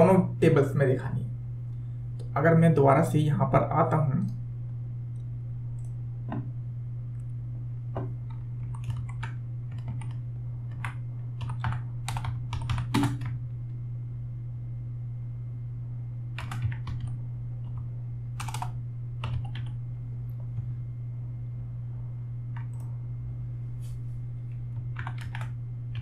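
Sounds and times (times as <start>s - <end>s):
steady low hum: 0.0s - 26.0s
typing on computer keyboard: 8.3s - 13.4s, 16.4s - 17.8s, 18.4s - 19.8s, 24.9s - 26.0s.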